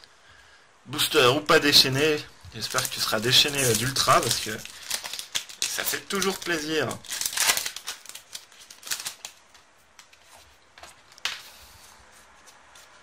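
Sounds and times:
foil pack tearing: 0:02.6 - 0:09.4
trading cards rustling and clicking: 0:02.6 - 0:11.6.

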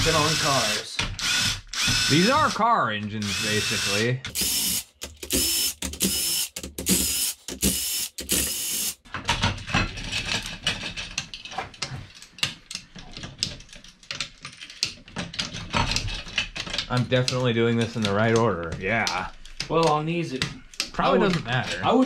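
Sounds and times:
power driver whining: 0:00.0 - 0:09.0
ratchet and metal clicks: 0:01.0 - 0:09.1.

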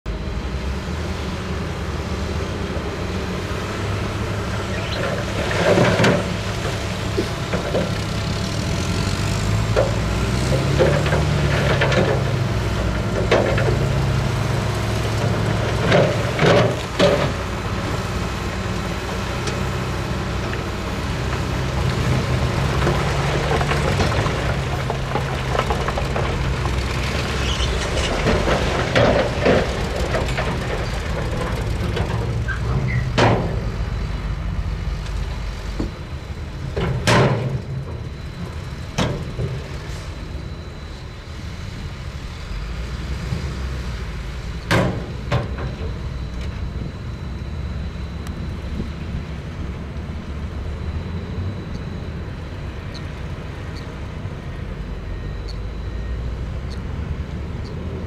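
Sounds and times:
diesel engines running: 0:00.0 - 0:58.0
metallic clanks and bangs: 0:27.8 - 0:33.8, 0:36.8 - 0:38.3, 0:44.7 - 0:46.0.

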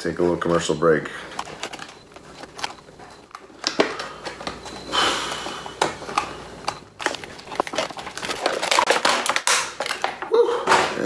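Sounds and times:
plastic clicks and crinkles: 0:01.3 - 0:11.0
plastic rustle: 0:07.0 - 0:10.3.

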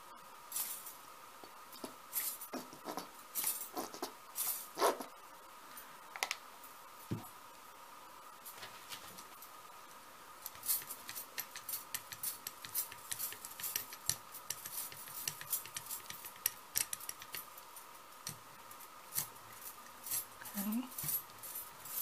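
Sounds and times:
paint mixing clicks and clinks: 0:10.4 - 0:22.0.

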